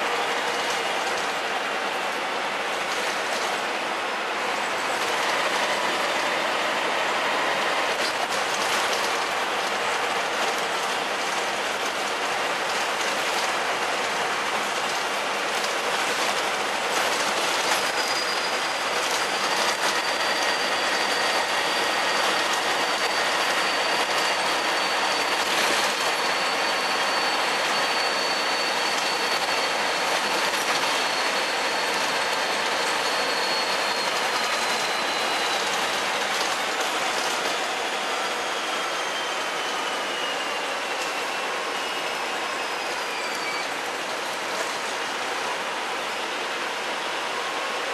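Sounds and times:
faint high whine: 17.8 - 43.9.

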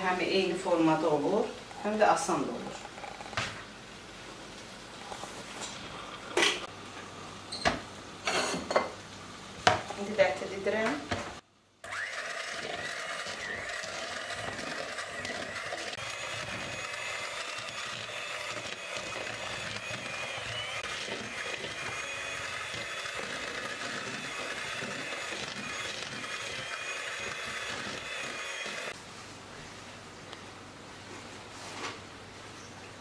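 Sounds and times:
electric hand mixer whirring: 11.8 - 29.0.

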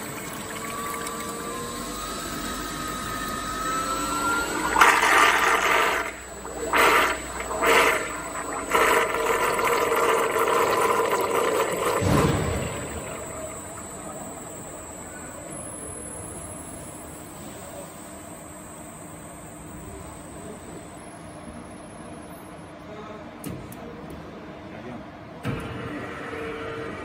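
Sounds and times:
faint whine: 0.0 - 22.6
water churning and splashing: 4.6 - 13.9.

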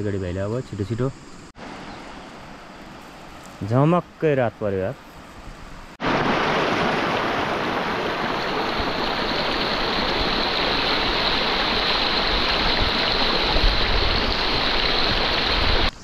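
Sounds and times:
river water rushing: 6.0 - 15.9.

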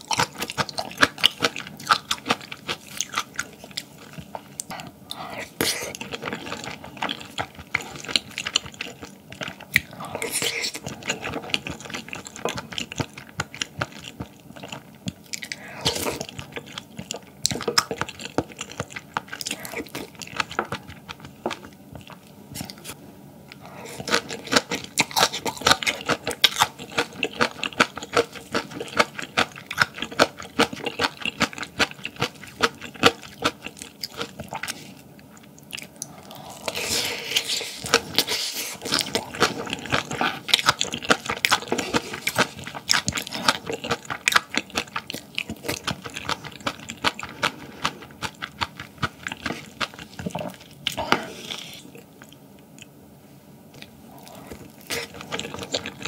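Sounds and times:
chewing with crisp crunching: 0.0 - 53.0, 53.7 - 56.0.

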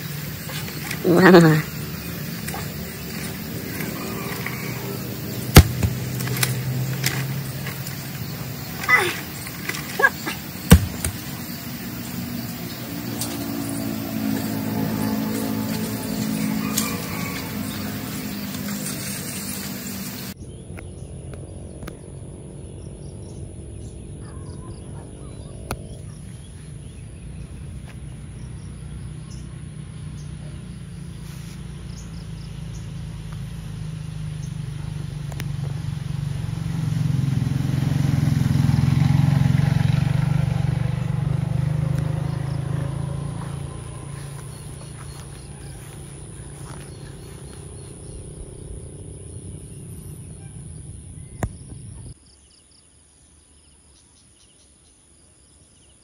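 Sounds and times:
small engine running: 0.0 - 20.4, 28.2 - 50.3.

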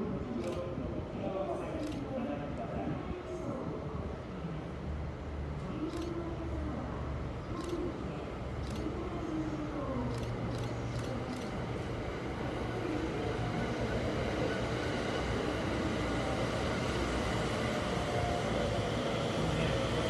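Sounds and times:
train wheels running on rails: 5.8 - 20.0.

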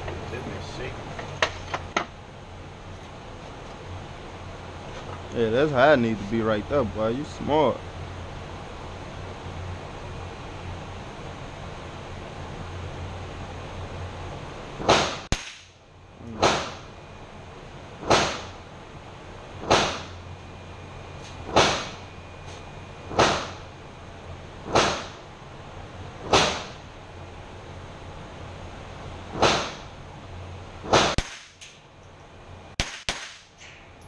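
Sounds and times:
rifle shots: 30.9 - 31.6, 32.8 - 33.5.

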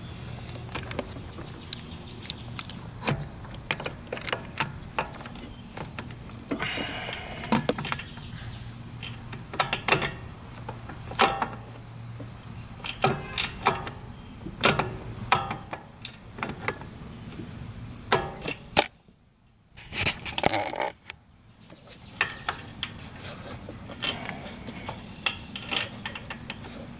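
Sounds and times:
metal parts clicking and knocking: 0.4 - 8.3, 9.0 - 16.9, 23.8 - 26.9.

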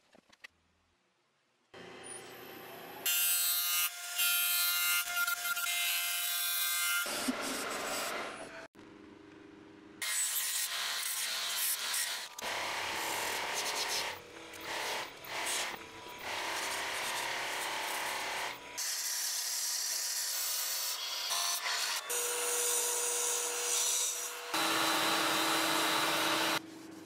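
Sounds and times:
lathe gouge scraping wood: 23.6 - 26.6.

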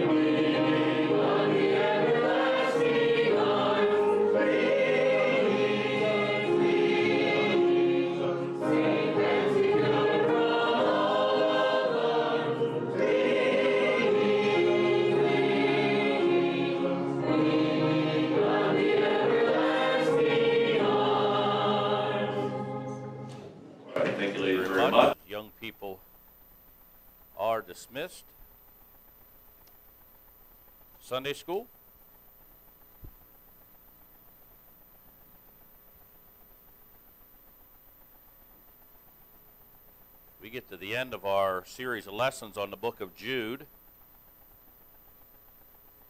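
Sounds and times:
congregation singing a hymn: 0.0 - 25.2.

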